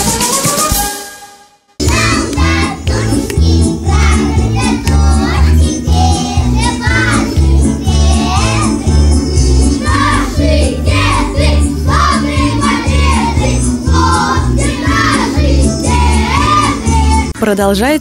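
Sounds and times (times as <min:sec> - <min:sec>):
young children singing: 0:01.8 - 0:17.3.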